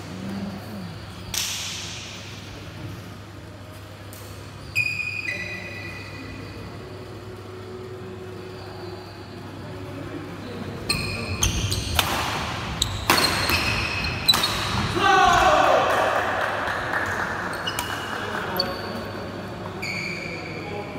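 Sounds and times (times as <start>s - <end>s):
court shoes squeaking: 3.7s - 7.0s, 10.5s - 15.4s, 16.9s - 20.9s
racket striking shuttlecock: 11.6s - 14.9s.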